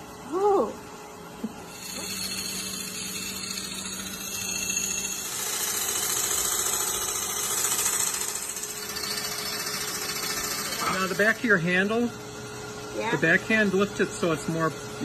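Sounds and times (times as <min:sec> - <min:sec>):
lathe gouge hissing through wood: 0:01.7 - 0:06.8
lathe motor hum: 0:01.7 - 0:15.0.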